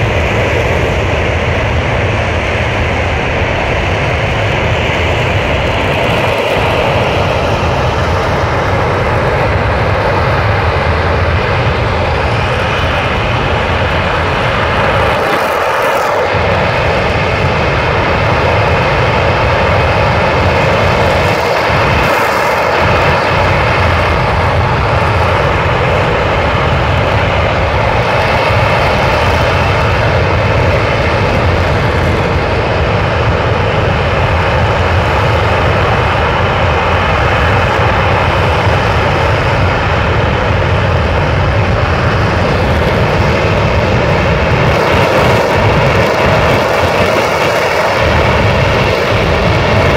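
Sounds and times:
rocket engine roaring: 0.0 - 49.9.

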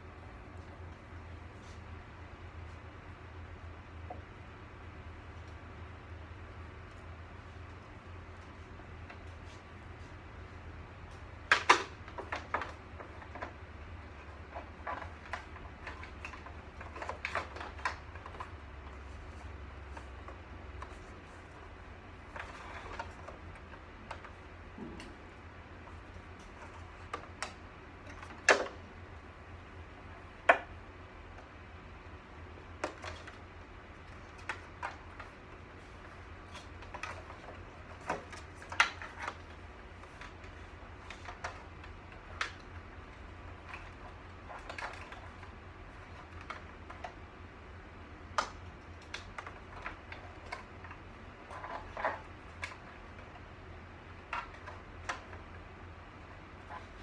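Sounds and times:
steady low hum: 0.0 - 57.0
clicks and knocks of parts handled: 11.1 - 28.9.

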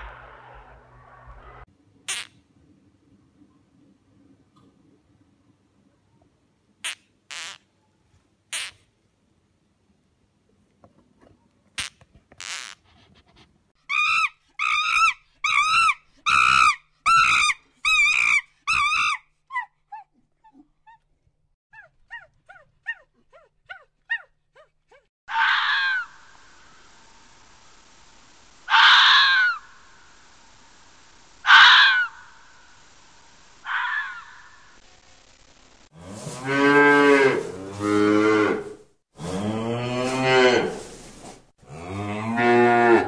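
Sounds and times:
faint steady hiss: 26.1 - 33.7
animal calls: 31.4 - 32.4, 33.6 - 34.6.

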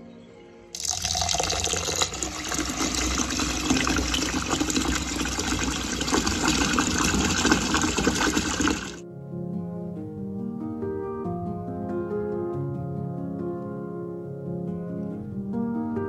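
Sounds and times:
tap water gushing into bowl: 0.8 - 9.0.

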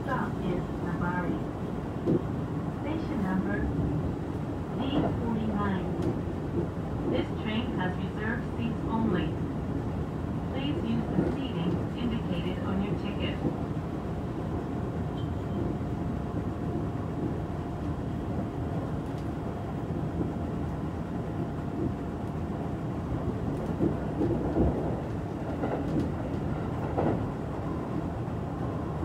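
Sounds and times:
train wheels rumbling on rail: 0.0 - 29.0
train knocks: 23.3 - 27.3.

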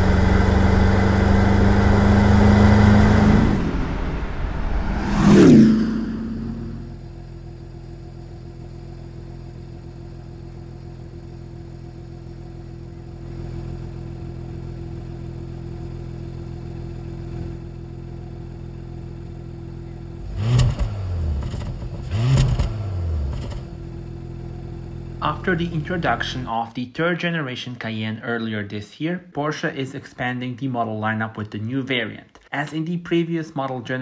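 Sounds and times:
car engine idling and revving: 0.0 - 26.5.

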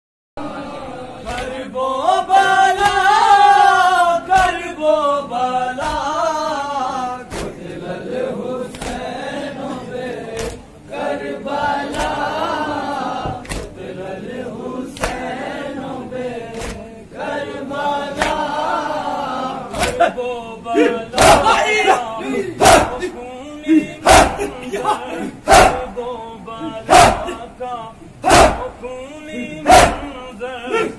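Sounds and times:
men chanting in chorus: 0.4 - 30.9
hands slapping chest: 4.4 - 4.6, 5.8 - 6.1, 8.7 - 9.1, 10.4 - 10.6, 13.4 - 13.7, 15.0 - 15.2, 19.7 - 20.0.

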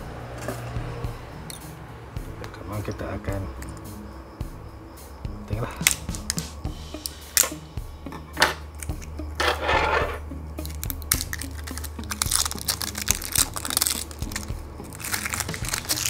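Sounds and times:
plastic bottle crinkling: 10.6 - 16.0.

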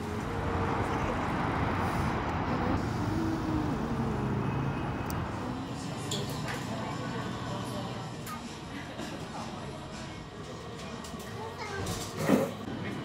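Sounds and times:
car driving past: 0.3 - 5.8.

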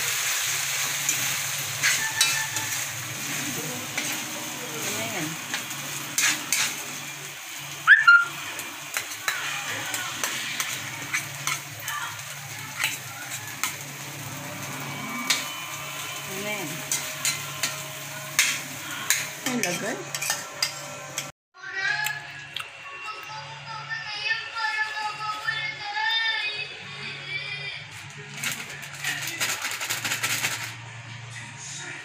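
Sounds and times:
tofu sizzling in wok: 0.0 - 21.3
music: 0.6 - 32.0
spatula scraping pan: 1.0 - 7.2, 8.8 - 21.3.

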